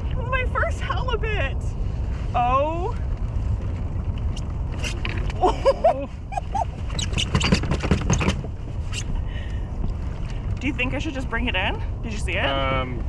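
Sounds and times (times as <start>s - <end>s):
wind rumbling on microphone: 0.0s - 13.0s
sharp clicks and knocks: 6.9s - 8.6s.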